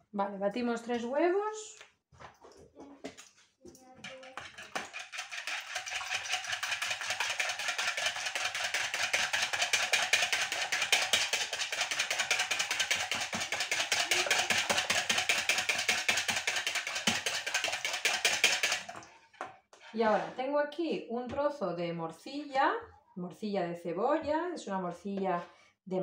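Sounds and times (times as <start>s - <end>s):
fork beating eggs in bowl: 3.0s - 20.3s.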